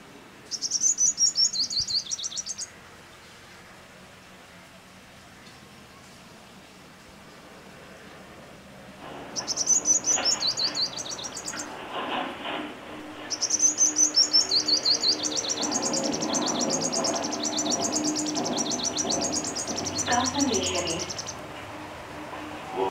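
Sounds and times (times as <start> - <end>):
songbird twittering: 0.4 - 3.2, 9.2 - 11.8, 13.2 - 21.4.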